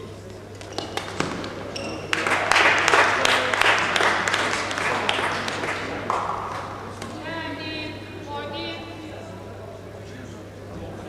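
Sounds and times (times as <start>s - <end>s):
crowd applause: 1.9s - 7.0s.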